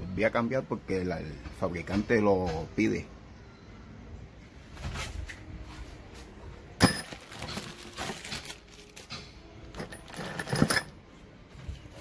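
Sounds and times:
metal bolts clinking: 9.1 - 11.0.

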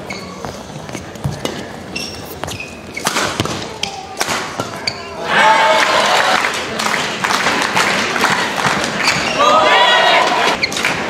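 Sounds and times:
shoes squeaking on court: 0.0 - 5.2, 8.8 - 9.4
rackets striking shuttlecock: 1.3 - 5.1.

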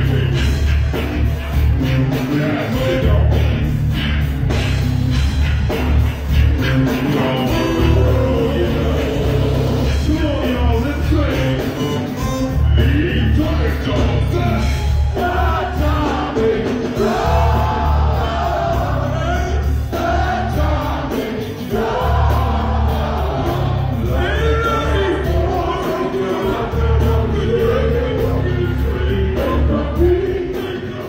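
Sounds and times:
funk band playing: 0.0 - 31.0
heavy repeating bass line: 0.0 - 31.0
singers chanting together: 15.2 - 31.0.

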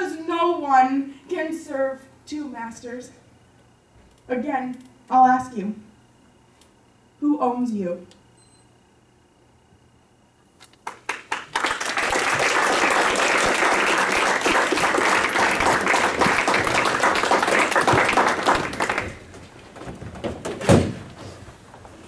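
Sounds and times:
audience applause: 10.8 - 19.4.

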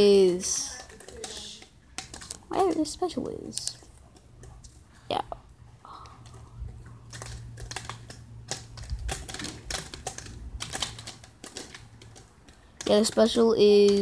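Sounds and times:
fingers clicking on phone: 0.6 - 4.7, 7.0 - 14.0.

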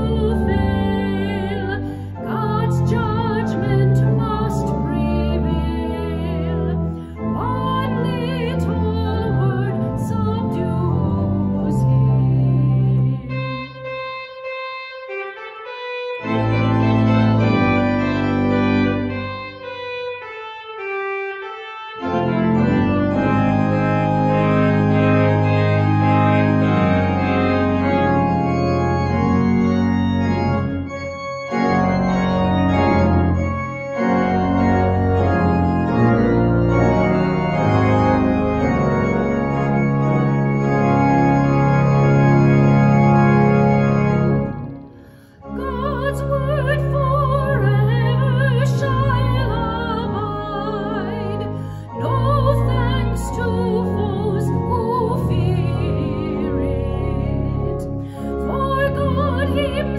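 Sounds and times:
person singing with vibrato: 0.0 - 13.8, 45.0 - 59.9
organ playing chords: 0.0 - 59.9.

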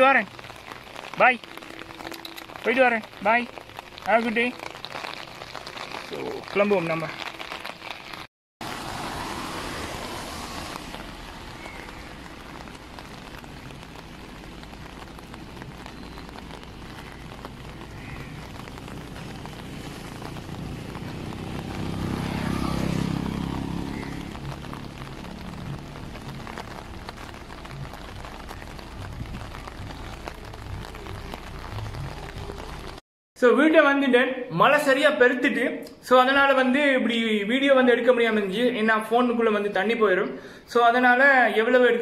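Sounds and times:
steady rain hiss: 0.0 - 33.0
wind: 0.0 - 33.7.

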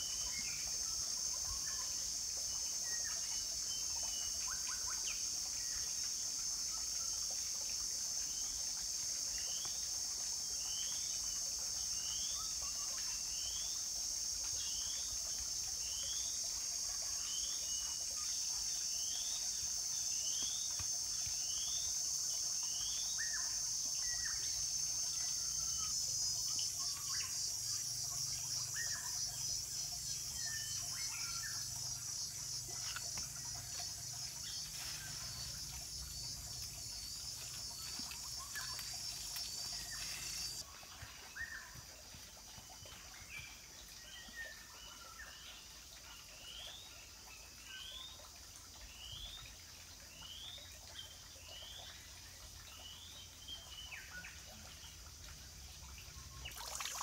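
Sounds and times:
insect drone: 0.0 - 40.7, 53.9 - 57.0.

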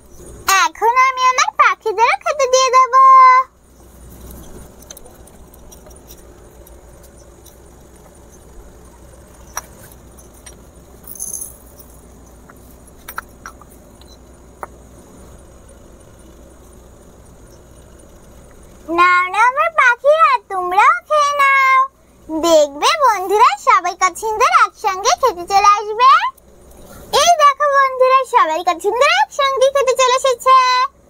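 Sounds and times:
low hum: 0.0 - 23.4.

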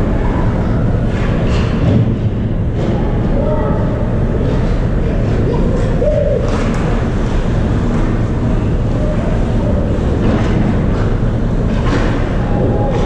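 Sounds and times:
low arena rumble: 0.0 - 13.0.

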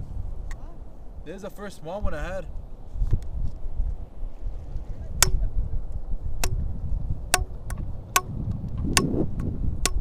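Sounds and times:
wind rumble: 0.0 - 10.0
pvc pipe knocking: 7.3 - 10.0.

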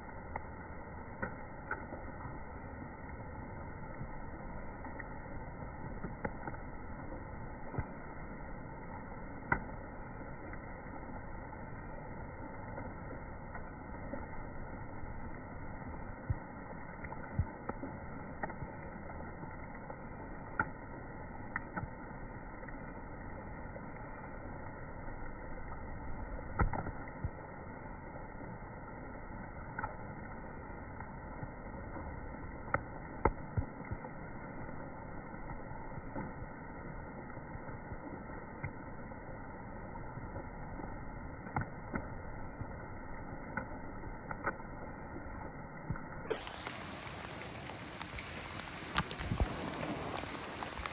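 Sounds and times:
river water flowing: 46.2 - 50.9.

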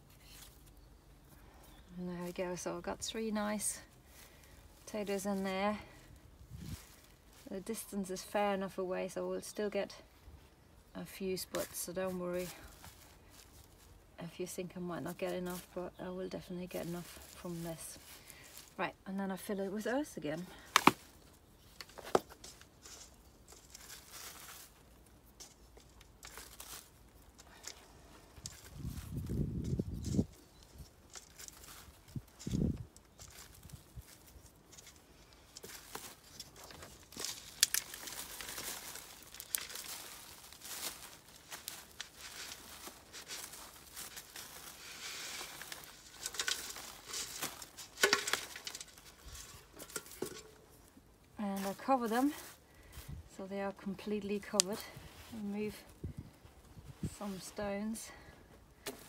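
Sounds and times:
soil rustling: 0.0 - 59.0
plastic bag crinkling: 22.3 - 50.9.

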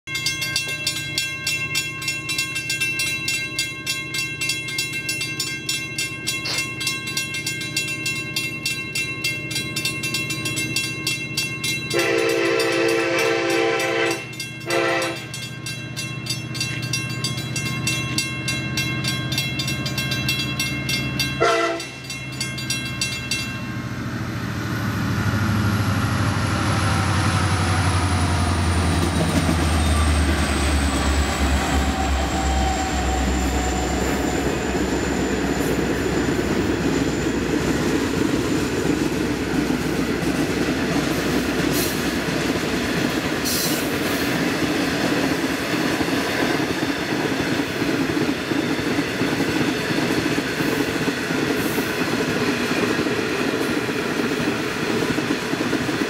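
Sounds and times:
level crossing bell ringing: 0.1 - 23.8
train wheels rumbling: 0.2 - 56.0
locomotive horn blasts: 11.9 - 15.4, 21.4 - 22.0.

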